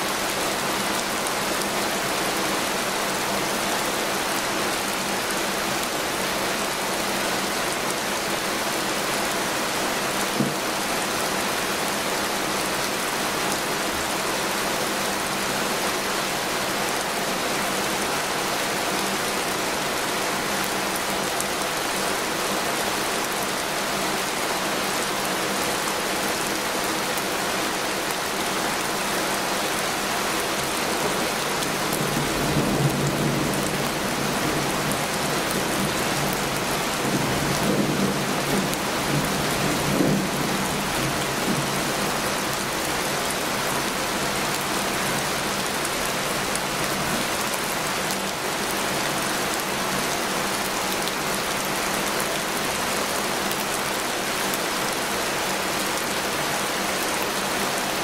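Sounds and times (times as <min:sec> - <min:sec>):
heavy rain hiss: 0:00.0 - 0:58.0.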